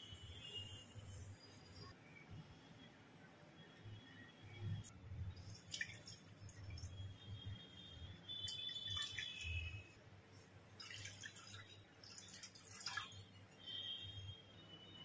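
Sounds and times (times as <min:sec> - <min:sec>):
liquid pouring into pan: 0:10.8 - 0:13.2.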